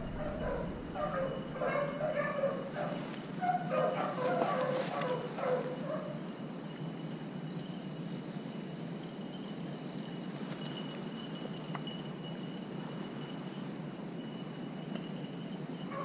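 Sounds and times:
distant dogs baying: 0.0s - 6.5s, 15.8s - 16.0s.

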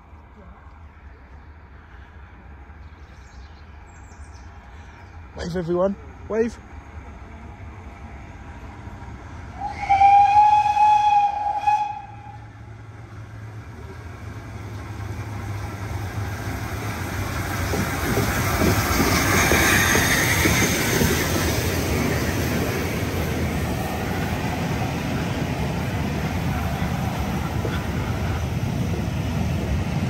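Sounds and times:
locomotive running and wheel noise: 5.2s - 30.0s
steam whistle blast: 9.6s - 12.4s.

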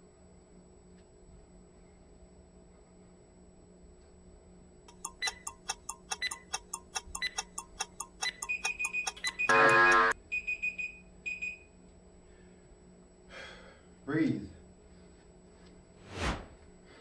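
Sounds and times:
timer ticking rapidly: 4.9s - 10.2s
loud buzzer: 9.3s - 10.2s.

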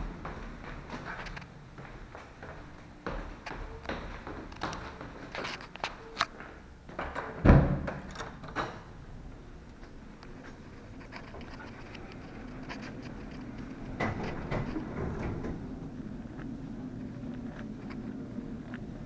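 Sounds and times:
steady low hum: 0.0s - 19.0s
door thumping open: 7.0s - 8.8s, 13.9s - 15.8s.

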